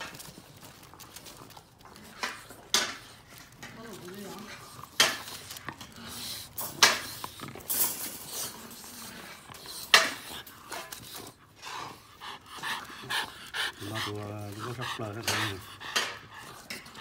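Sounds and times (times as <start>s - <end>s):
wire pen rattling and clanking: 0.0s - 11.3s
puppies scuffling: 0.0s - 17.0s.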